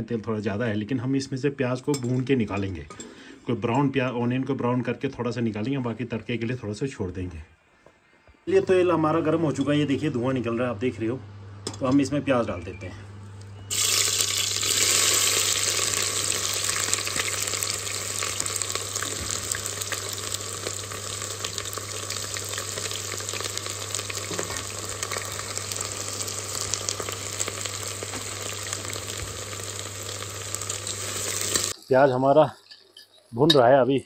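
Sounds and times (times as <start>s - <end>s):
onions sizzling in oil: 13.7s - 32.3s.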